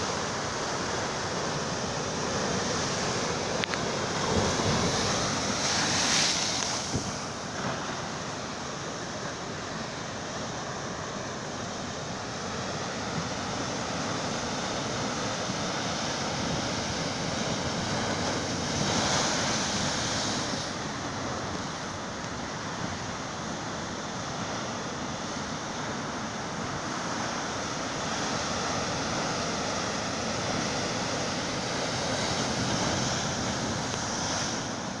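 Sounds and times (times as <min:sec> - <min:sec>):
surf breaking over rocks: 0:00.0 - 0:09.9.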